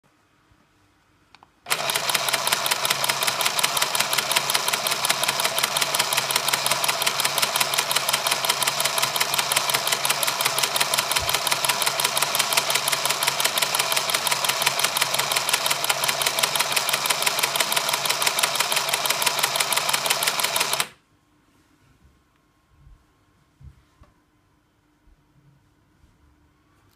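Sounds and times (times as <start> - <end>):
toy sewing machine clattering: 1.7 - 20.9.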